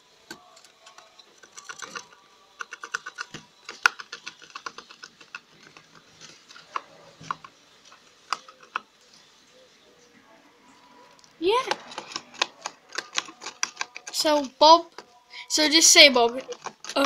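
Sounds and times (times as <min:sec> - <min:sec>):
rabbit gnawing cardboard tube: 0:00.3 - 0:09.0, 0:11.6 - 0:15.2, 0:15.8 - 0:17.0
cardboard cracking: 0:11.7 - 0:15.0, 0:16.3 - 0:17.0.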